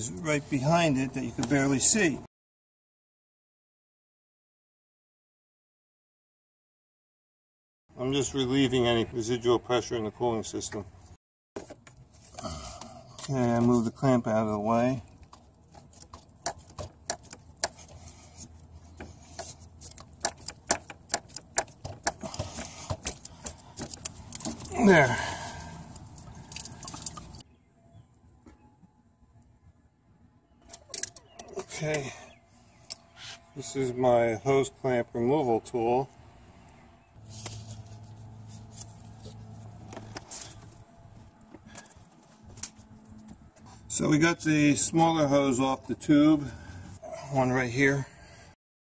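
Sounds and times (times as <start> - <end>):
low steady hum: 11.9 - 48.4.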